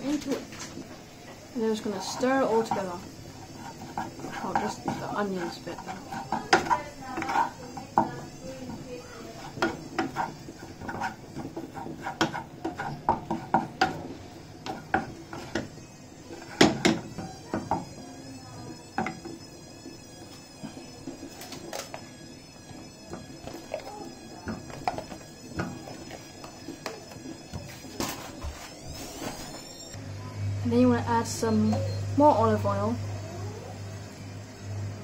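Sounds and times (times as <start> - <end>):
wooden spoon scraping frying pan: 1.7 - 17.9.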